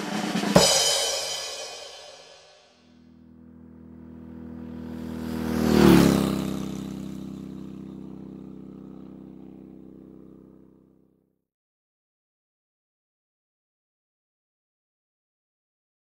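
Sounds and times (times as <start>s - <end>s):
vehicle engine passing by: 1.2s - 11.0s.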